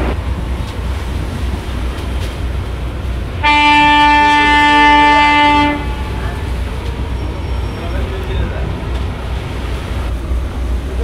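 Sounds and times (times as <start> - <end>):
ship's horn blast: 3.4 - 6.6.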